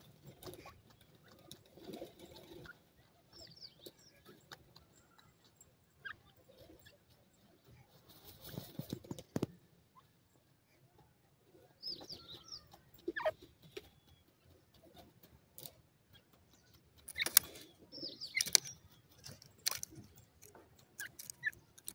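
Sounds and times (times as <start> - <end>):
birds scratching in dry sand: 0.0 - 21.9
high squeaky bird chirps: 5.9 - 7.0, 11.8 - 14.3, 16.1 - 21.8.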